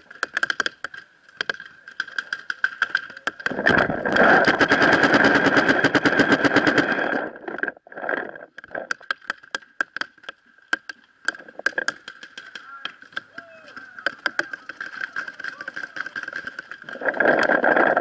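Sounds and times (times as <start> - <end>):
paintball marker firing: 11.6 - 17.0.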